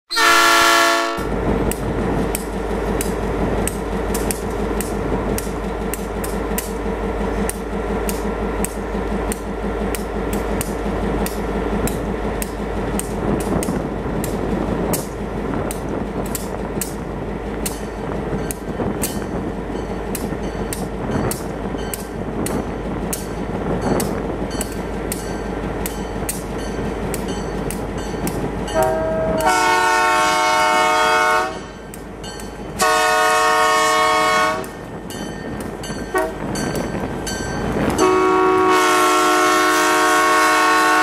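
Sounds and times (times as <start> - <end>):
distant diesel locomotive rumble: 0.1 - 41.0
sharp rhythmic clicks: 1.6 - 28.7.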